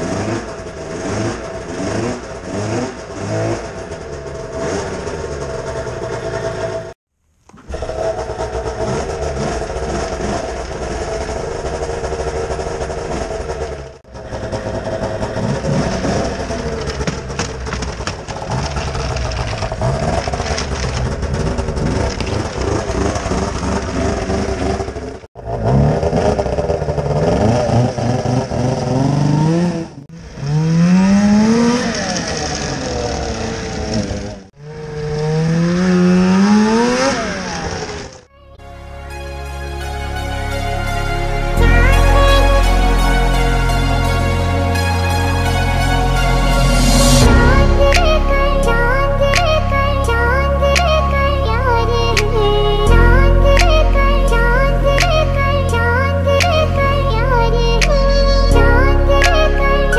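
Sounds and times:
snowmobile engine revving: 0:00.0 - 0:38.4, 0:39.5 - 0:59.9.

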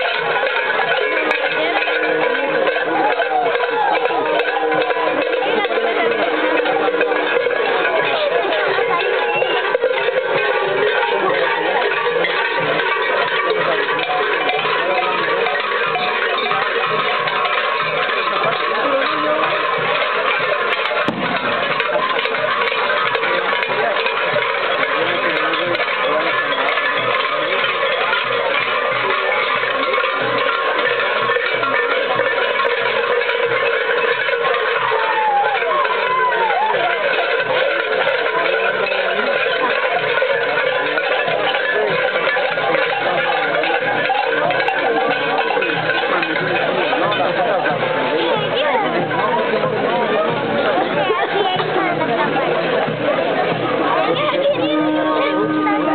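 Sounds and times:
small bells jingling: 0:00.0 - 0:55.9
steady low beat: 0:21.1 - 0:22.8.

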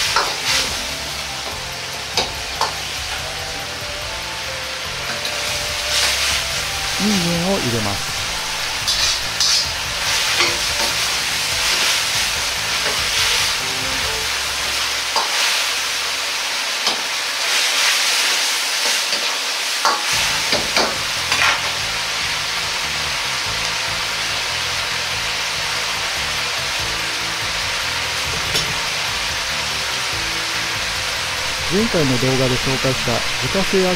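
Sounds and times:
metal ladle scraping wok: 0:00.0 - 0:01.2, 0:05.0 - 0:07.0, 0:08.0 - 0:16.4
food sizzling in a wok: 0:00.0 - 0:33.9.

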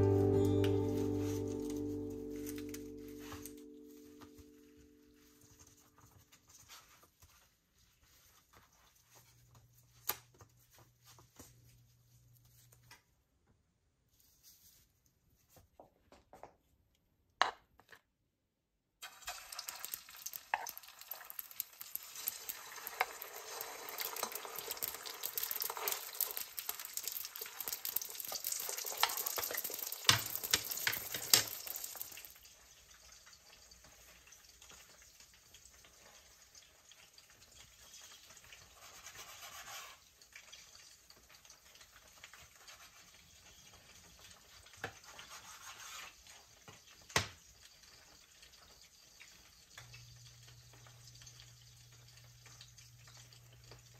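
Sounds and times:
food sizzling in a pan: 0:00.0 - 0:06.0, 0:19.0 - 0:53.9
faint kitchen sounds: 0:00.0 - 0:53.9.

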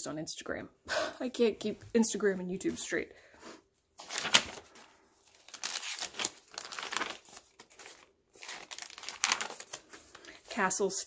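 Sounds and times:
paper pages rustling: 0:04.0 - 0:10.9.

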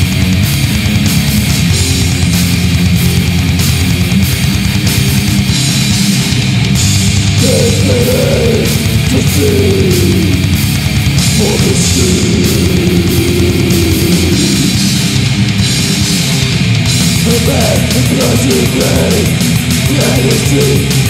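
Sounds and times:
distorted electric guitars: 0:00.0 - 0:21.0
drums with cymbal hits: 0:00.0 - 0:21.0
pitch-bending lead guitar line: 0:00.0 - 0:21.0.

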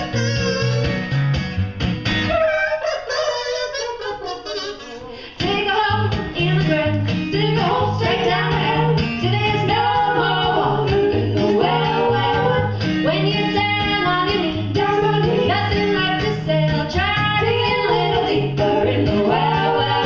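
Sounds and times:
women singing: 0:05.0 - 0:20.0.

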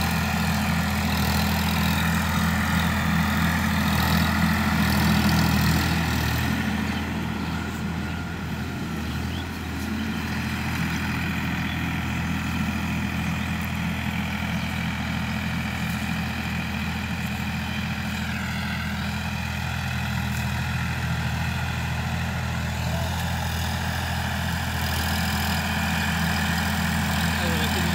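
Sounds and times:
tractor diesel engine under load: 0:00.0 - 0:27.9.

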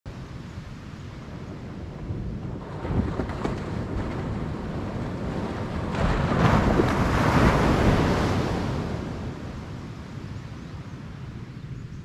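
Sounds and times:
wind buffeting microphone: 0:00.1 - 0:12.0
surf breaking on shore: 0:01.2 - 0:10.2.

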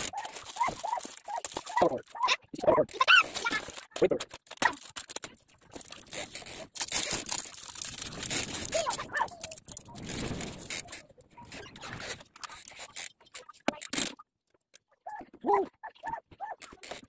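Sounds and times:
plastic packaging rustling: 0:00.0 - 0:02.3, 0:02.9 - 0:13.1.

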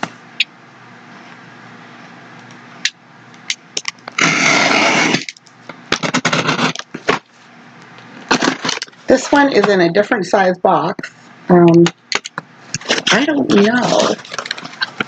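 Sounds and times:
knife scraping through box tape: 0:04.1 - 0:05.3, 0:05.9 - 0:07.0.

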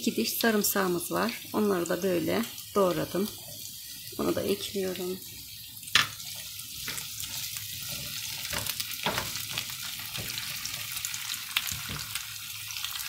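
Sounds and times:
vegetables sizzling in a frying pan: 0:00.0 - 0:13.0
spatula scraping a pan: 0:02.4 - 0:12.2.

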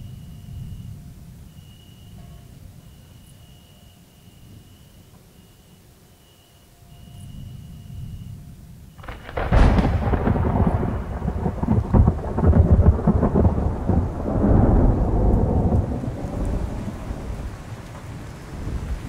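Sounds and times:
thunder rumbling and cracking: 0:09.0 - 0:19.0.

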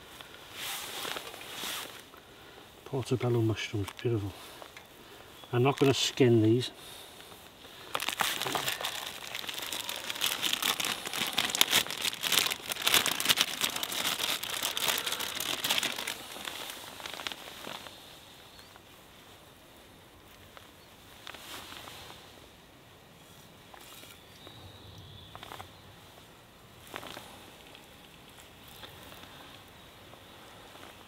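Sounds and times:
plastic packaging crinkling: 0:07.8 - 0:18.0.

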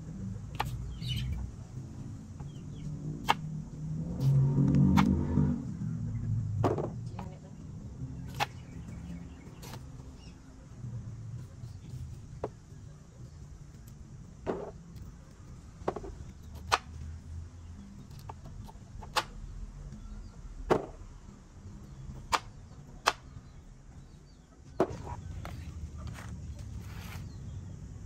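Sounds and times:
machete chopping on wooden board: 0:03.2 - 0:03.5, 0:04.9 - 0:05.2, 0:08.3 - 0:08.7, 0:15.8 - 0:17.0, 0:20.7 - 0:21.0, 0:22.3 - 0:23.3.

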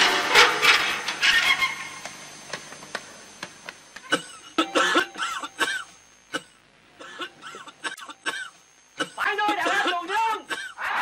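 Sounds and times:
people coughing: 0:04.0 - 0:10.8.

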